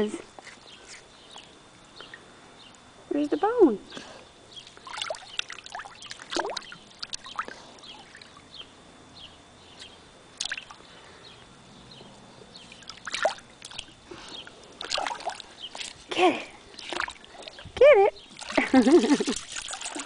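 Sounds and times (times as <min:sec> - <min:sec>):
dog splashing in water: 0:14.8 - 0:16.0, 0:18.2 - 0:20.0.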